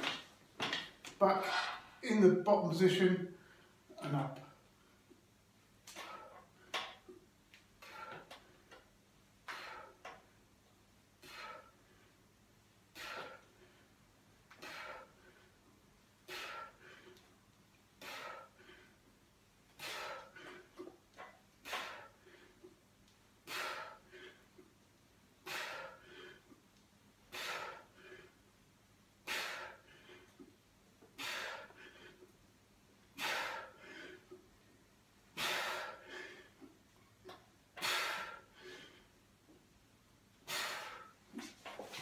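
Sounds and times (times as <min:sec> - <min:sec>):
man breathing out hard: 0:14.5 - 0:15.6, 0:27.3 - 0:28.4, 0:31.2 - 0:32.2, 0:33.2 - 0:34.4, 0:35.4 - 0:36.7.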